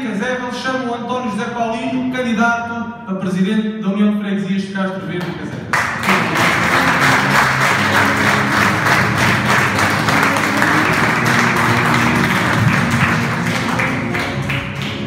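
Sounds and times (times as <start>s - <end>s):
audience applauding: 5.2s - 15.0s
music playing: 5.8s - 15.0s.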